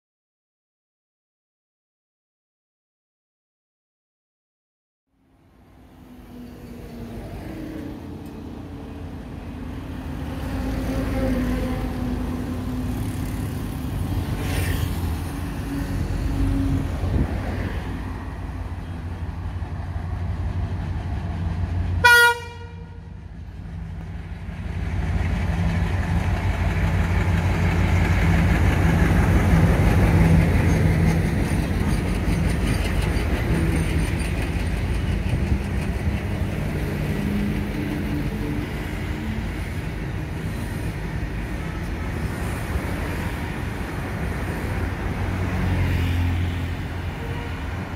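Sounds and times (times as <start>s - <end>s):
diesel locomotive engine hum: 5.1s - 47.9s
train wagons rumbling: 6.1s - 47.9s
train horn blast: 22.0s - 23.1s, 47.0s - 47.9s.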